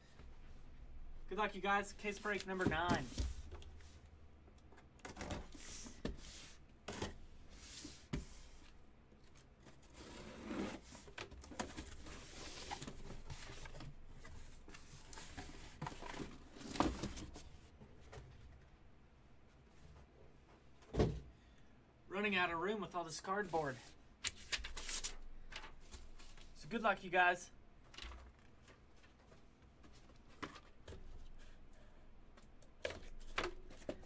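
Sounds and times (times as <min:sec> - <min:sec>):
cardboard scraping and rustling: 0:09.7 - 0:17.6.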